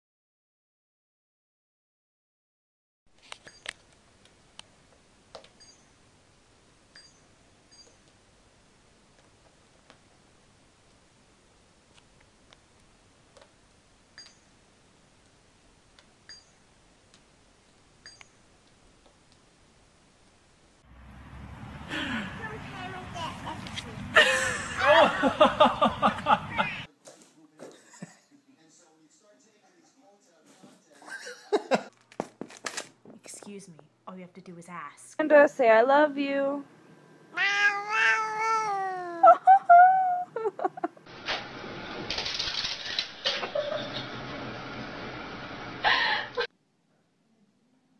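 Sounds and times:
cat chirps: 37.3 - 39.2
cat meowing: 37.3 - 39.2.

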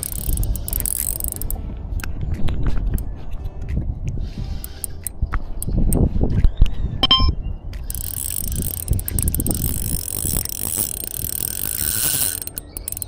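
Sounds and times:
fishing reel whirring ratchet: 0.0 - 1.6, 4.4 - 6.0, 7.8 - 13.0.

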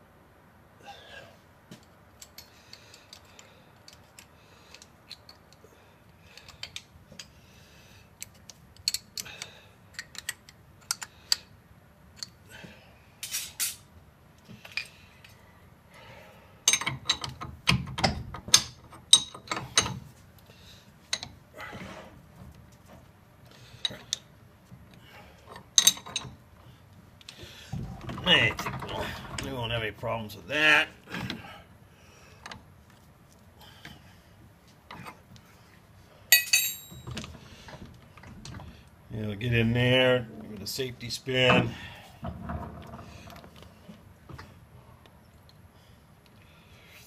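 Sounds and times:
metallic clicks and clunks: 16.7 - 20.1, 25.5 - 26.4, 27.2 - 29.8, 36.4 - 38.7, 41.4 - 44.6.

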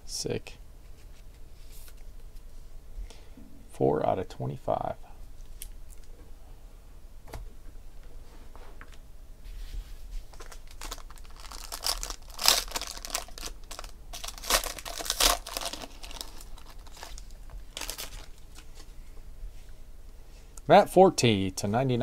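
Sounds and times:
foil pack crinkling and tearing: 10.3 - 18.8.

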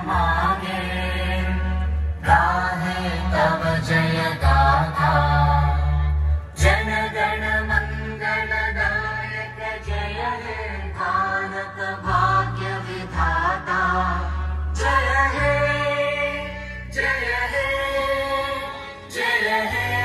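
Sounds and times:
person singing chant-like melody: 0.0 - 20.0.

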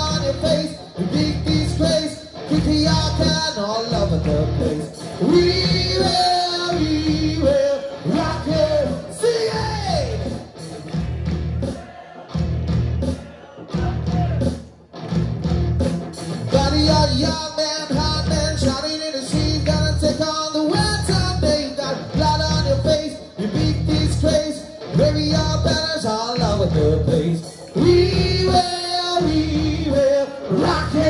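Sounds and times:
person singing: 0.0 - 10.3, 16.5 - 31.0
live rock band playing: 0.0 - 31.0
heavy drum beat: 5.4 - 27.2, 27.8 - 30.0.

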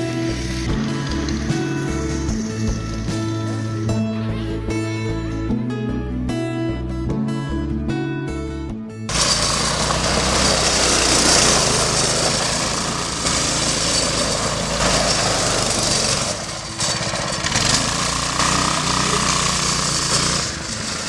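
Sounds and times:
small gas engine running hard: 0.0 - 4.0, 9.1 - 21.0
gravel crunching under tyres: 9.1 - 21.0.

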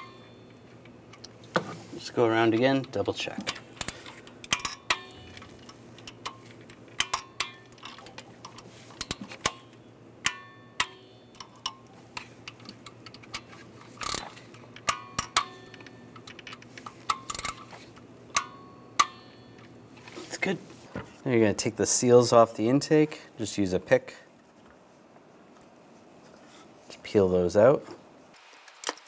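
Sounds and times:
torque wrench clicking: 12.5 - 17.7.

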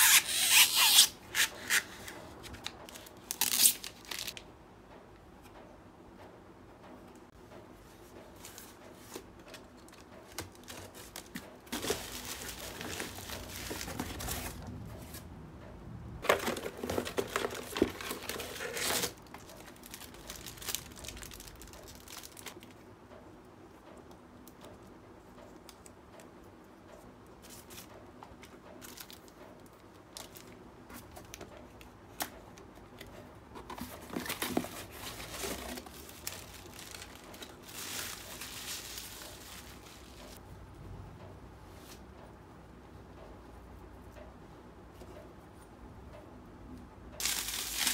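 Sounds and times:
packing tape tearing: 0.0 - 2.0, 2.9 - 4.4, 16.2 - 22.5, 47.2 - 47.9
bubble wrap crinkling: 2.5 - 4.4, 10.3 - 15.2, 16.2 - 22.7, 33.7 - 40.4, 47.2 - 47.9.

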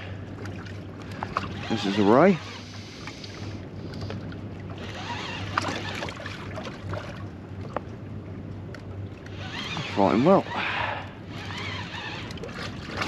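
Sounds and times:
low steady hum: 0.0 - 13.0
water and wind noise: 0.0 - 13.0.

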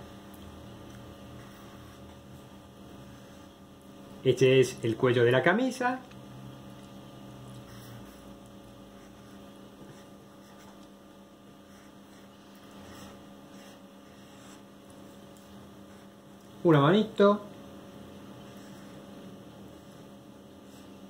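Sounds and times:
electrical mains hum: 0.0 - 21.0
marker drawing on paper: 9.0 - 10.8, 11.6 - 14.8, 18.4 - 19.1, 19.7 - 21.0.

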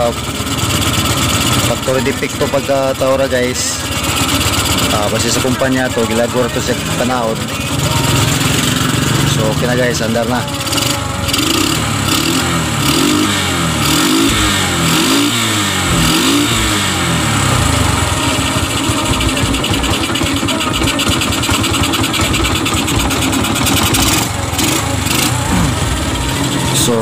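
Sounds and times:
motorcycle engine revving and idling: 0.0 - 27.0.

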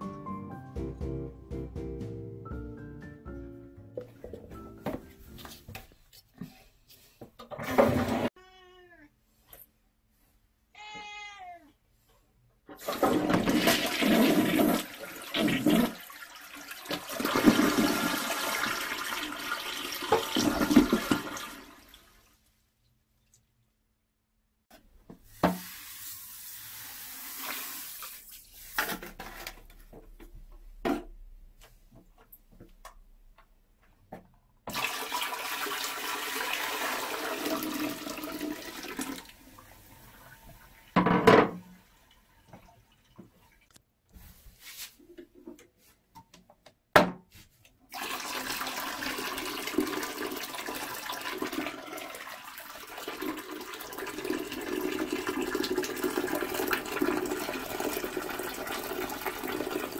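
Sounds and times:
water pouring into toilet bowl: 12.8 - 22.5, 25.4 - 28.8, 34.7 - 41.0, 47.9 - 59.9.

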